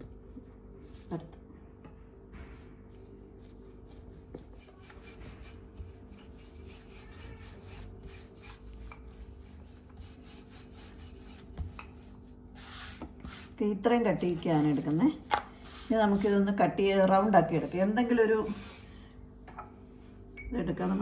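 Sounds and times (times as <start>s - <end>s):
rolling pin rubbing dough: 2.4s - 18.6s.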